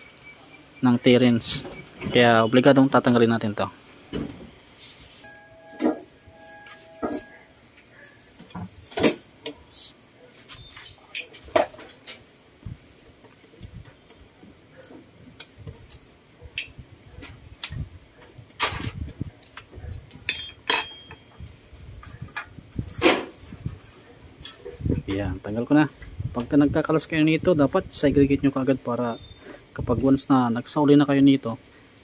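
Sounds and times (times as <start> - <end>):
hand tools clinking on metal: 11.1 - 11.8, 16.6 - 16.8, 20.2 - 21.5.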